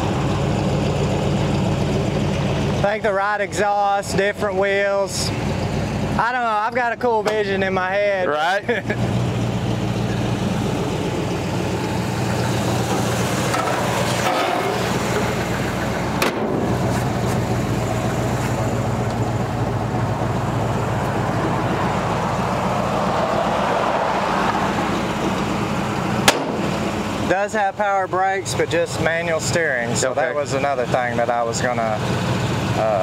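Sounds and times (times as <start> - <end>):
engine idling: 0.0 - 33.0
sharp knock: 26.2 - 26.8.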